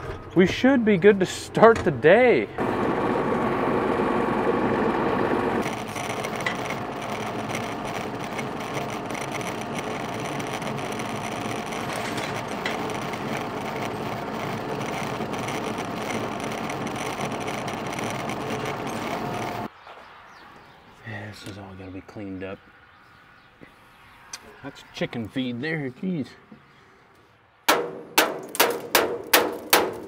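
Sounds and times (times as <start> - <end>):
tractor diesel engine running: 0.0 - 19.7.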